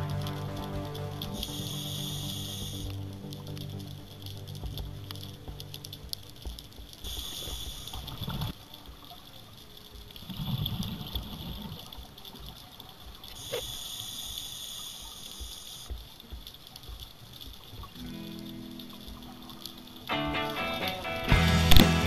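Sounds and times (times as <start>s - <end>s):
steady hiss: 0.0s - 8.8s, 13.2s - 16.3s.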